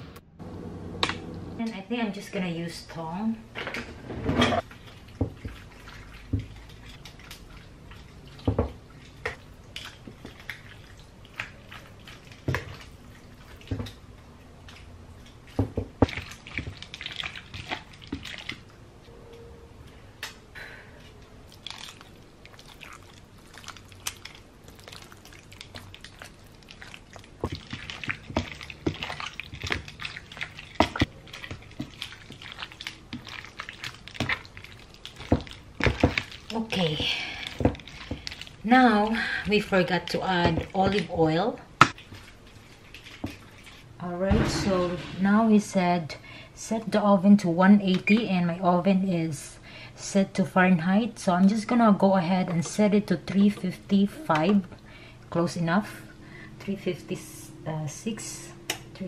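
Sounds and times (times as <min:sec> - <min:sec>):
wet squelching of meat: 0:04.6 - 0:18.8, 0:21.4 - 0:41.3, 0:41.9 - 0:44.0.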